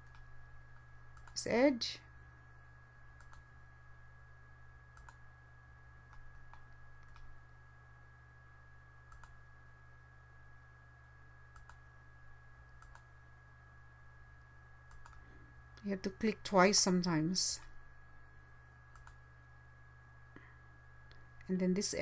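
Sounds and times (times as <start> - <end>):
computer mouse clicks: 0.0 - 1.4, 3.2 - 3.5, 4.9 - 5.2, 6.1 - 7.3, 9.1 - 9.4, 11.5 - 11.9, 12.7 - 13.1, 14.9 - 15.2, 18.9 - 19.2
steady low hum: 0.0 - 22.0.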